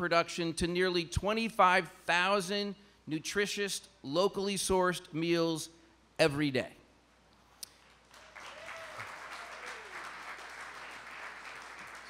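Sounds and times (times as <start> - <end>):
audience applauding: 7.8 - 12.0.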